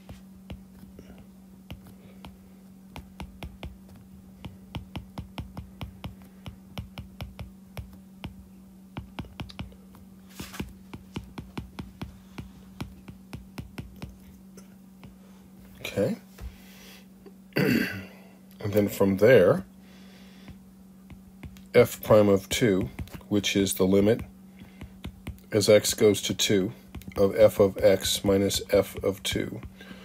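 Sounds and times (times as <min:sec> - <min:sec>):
stylus tapping on glass screen: 0:01.7 - 0:08.4, 0:10.9 - 0:14.2, 0:21.1 - 0:21.7, 0:24.6 - 0:25.5.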